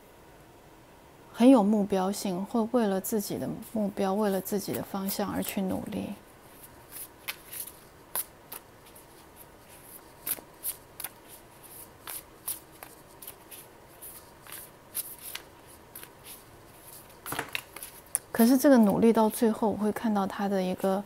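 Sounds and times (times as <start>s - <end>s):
cards being shuffled: 6.5s - 19.0s.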